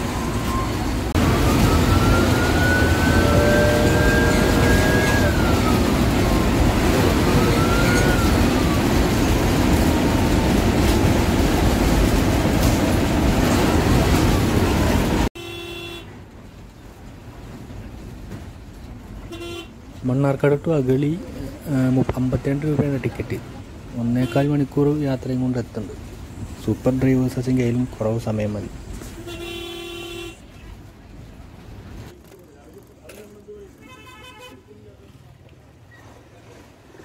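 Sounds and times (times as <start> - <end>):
bus engine and road noise: 0.0 - 37.0
horn toot: 29.1 - 30.4.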